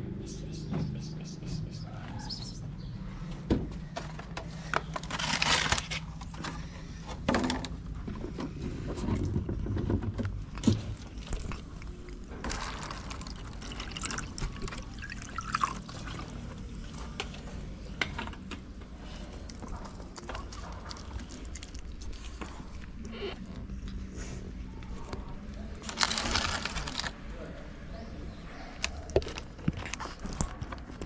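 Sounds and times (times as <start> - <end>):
plastic containers rustling and knocking: 3.4 - 21.3, 25.2 - 27.2
water pouring into plastic tray: 12.4 - 16.3.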